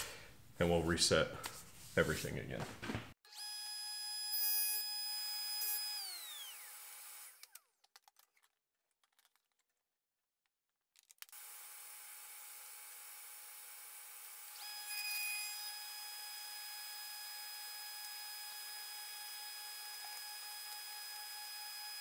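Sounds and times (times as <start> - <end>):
table saw winding down: 3.6 - 7.6.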